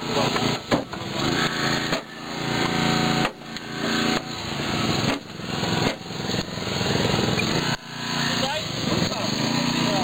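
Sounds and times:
hydraulic spreader forcing car door: 0.0 - 7.8
small petrol engine running hard: 0.0 - 10.0.

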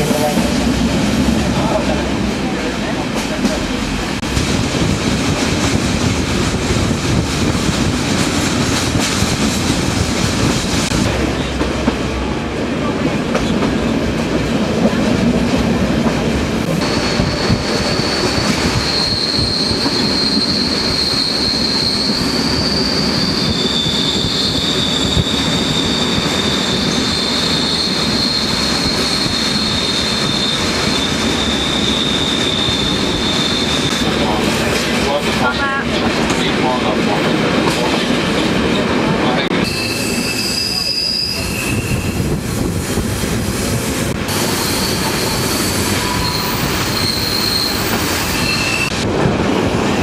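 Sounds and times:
train wheels rumbling on rail: 0.0 - 50.0
high wheel squeal: 16.8 - 34.1, 39.6 - 42.4, 44.3 - 49.0.

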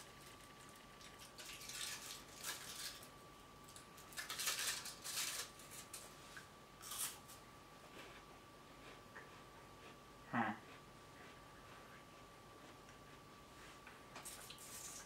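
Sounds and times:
plastic wrapper crinkling and tearing: 1.2 - 3.1, 3.7 - 6.0.

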